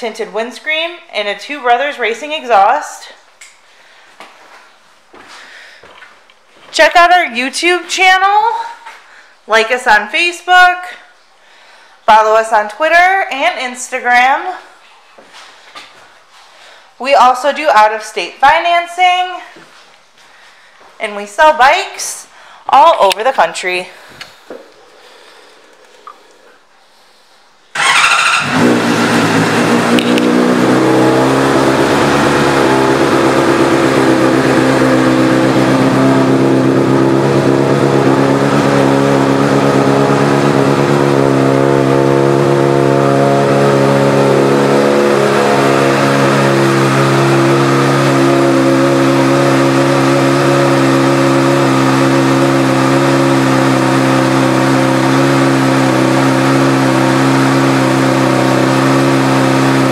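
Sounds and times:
motorcycle engine idling: 27.7s - 59.9s.

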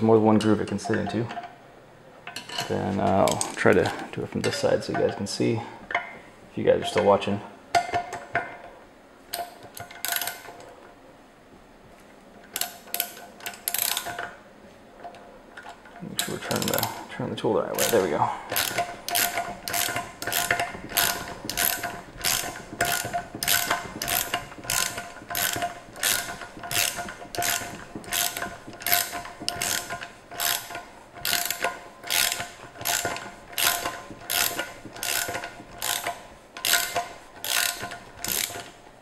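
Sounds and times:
ratchet wrench clicking: 9.3s - 10.5s, 12.6s - 14.2s, 16.2s - 17.0s, 17.8s - 38.8s.

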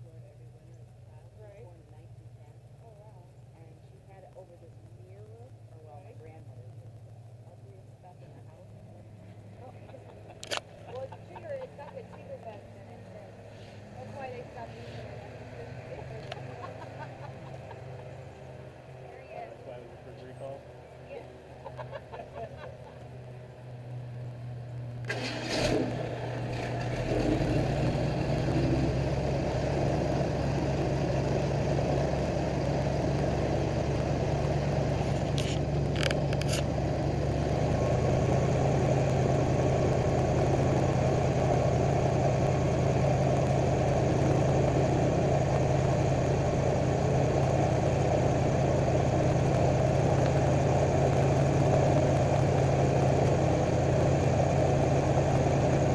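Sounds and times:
airboat engine and propeller: 3.2s - 55.9s.

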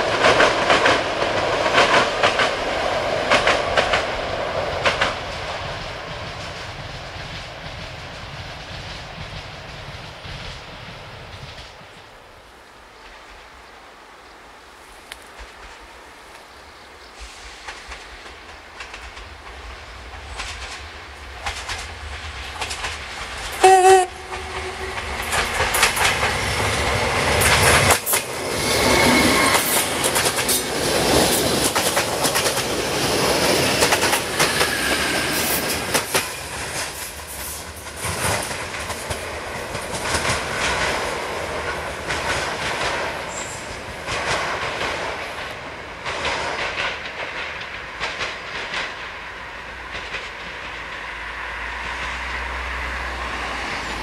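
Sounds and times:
train wheels clicking over rail joints: 0.0s - 12.1s, 15.0s - 54.0s
train horn blast: 23.5s - 25.6s.

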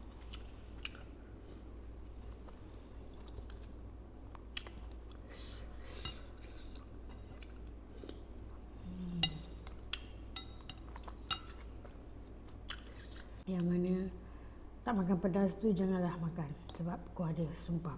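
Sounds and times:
close chewing of crunchy food: 0.0s - 8.6s.

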